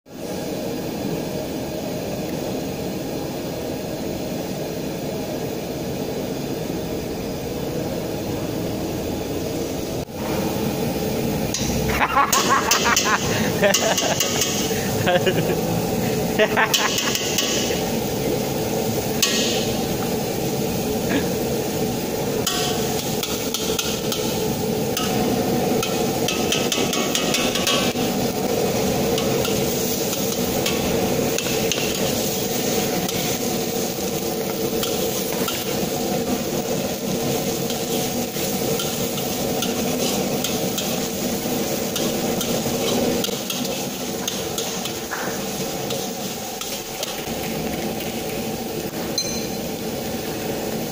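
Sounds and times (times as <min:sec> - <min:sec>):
gas burner rushing: 0:00.1 - 0:50.9.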